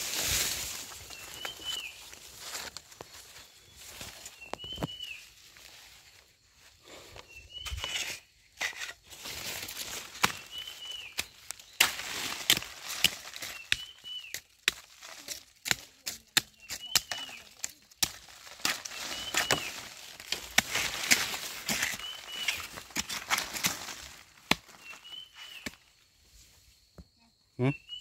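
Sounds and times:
leaves and twigs crackling underfoot: 0.0s - 27.0s
whistled bird call: 10.4s - 11.3s, 13.5s - 14.4s, 24.8s - 25.8s, 27.6s - 28.0s.

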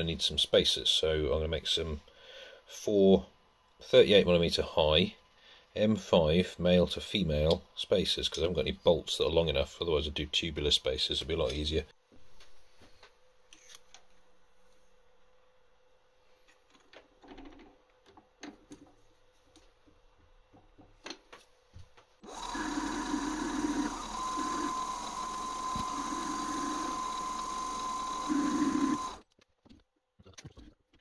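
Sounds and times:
metal lathe whining: 22.2s - 29.2s.

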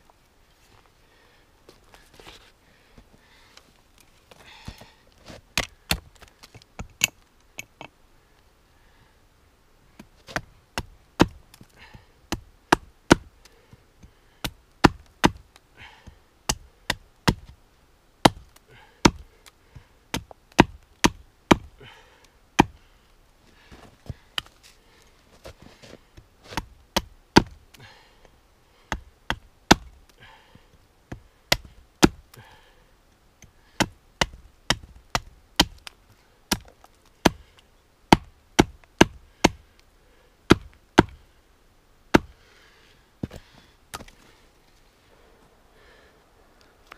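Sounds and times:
axe striking wooden wedge: 10.3s - 11.4s, 14.4s - 15.4s, 16.5s - 17.5s, 18.2s - 19.2s, 20.1s - 21.7s, 26.5s - 27.6s, 28.9s - 30.0s, 31.1s - 32.2s, 33.8s - 35.9s, 36.5s - 37.4s, 38.1s - 39.6s, 40.5s - 41.2s, 42.1s - 42.3s.

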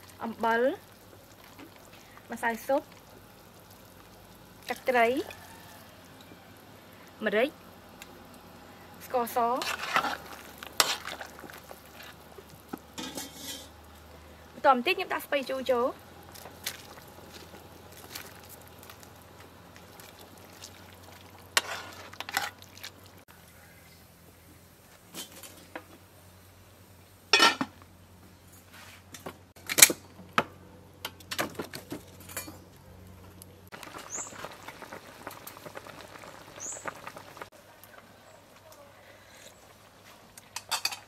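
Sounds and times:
soup boiling hiss: 0.0s - 23.4s, 32.8s - 41.0s
metal cookware clinking: 13.0s - 13.7s, 27.3s - 27.7s, 40.6s - 41.0s.

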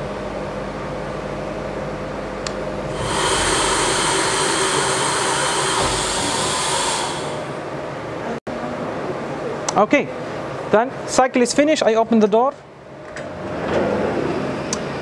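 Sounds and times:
machine hum: 2.7s - 8.4s
loud rushing hiss: 2.9s - 7.8s.

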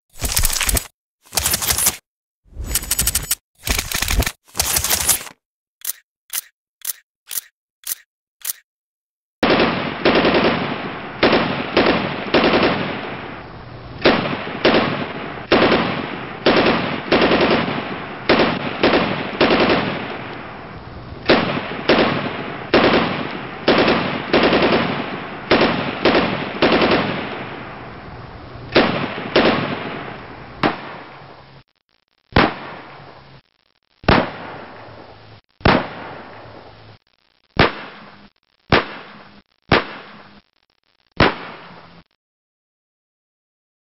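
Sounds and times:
gunshots ringing: 32.4s - 33.0s, 35.6s - 36.6s, 37.6s - 40.3s, 41.2s - 41.8s.

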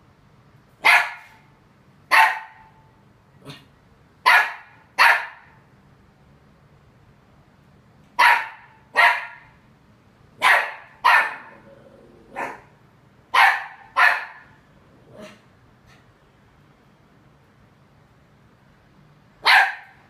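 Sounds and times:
puppy barking in high yaps: 0.8s - 1.5s, 2.1s - 2.8s, 4.2s - 5.6s, 8.2s - 9.6s, 10.4s - 11.6s, 12.3s - 12.7s, 13.3s - 14.6s, 19.4s - 20.0s.

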